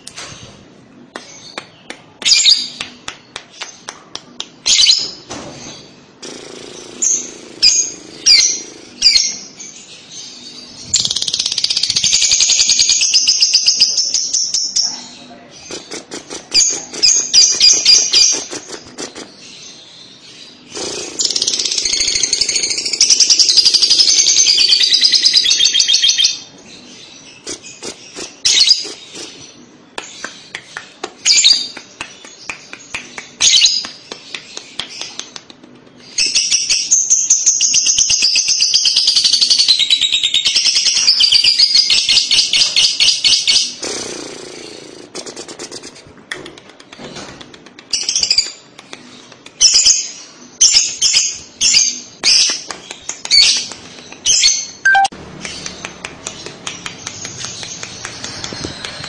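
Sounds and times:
bird chirps and clicks: 27.4 - 36.8, 45.3 - 50.0, 50.6 - 59.0
bird high-pitched trills: 54.3 - 55.1.

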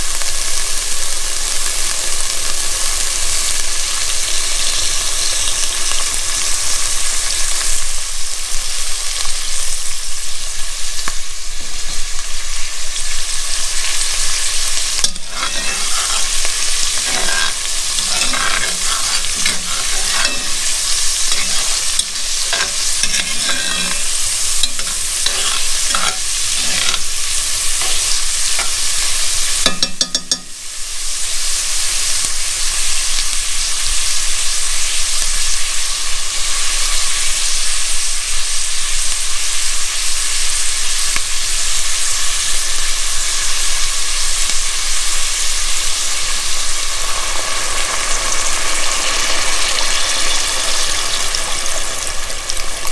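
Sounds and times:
onions sizzling in oil: 0.0 - 52.9
metal spoon scraping pot: 15.0 - 30.5.

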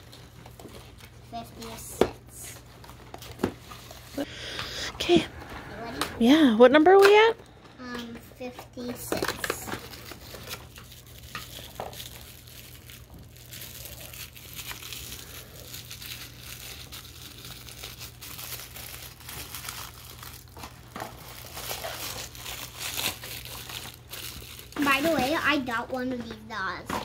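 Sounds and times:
plastic packaging crinkling: 5.6 - 25.8
packaging tearing: 9.1 - 25.4.

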